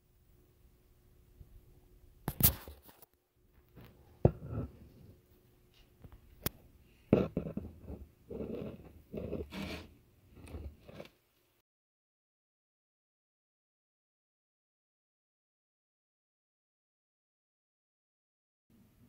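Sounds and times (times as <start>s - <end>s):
wooden model rubbing and scraping: 4.3s - 5.2s, 7.1s - 11.2s.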